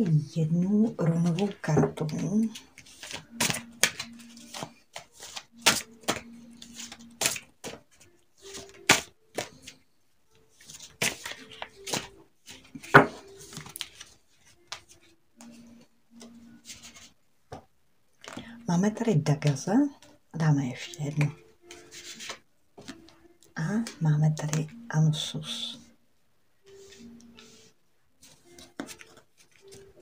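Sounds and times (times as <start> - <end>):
cards being shuffled: 1.2 - 9.8, 10.5 - 15.6, 16.2 - 17.2, 20.8 - 23.1, 28.2 - 30.0
card snaps and taps: 3.0 - 7.8, 8.5 - 9.6.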